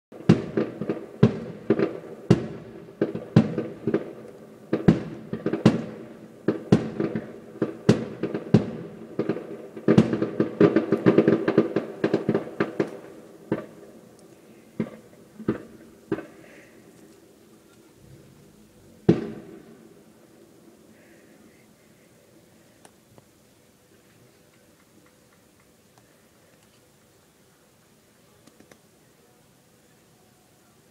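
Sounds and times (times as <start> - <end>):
fireworks bangs with echoes: 0.1 - 16.9, 19.0 - 20.1.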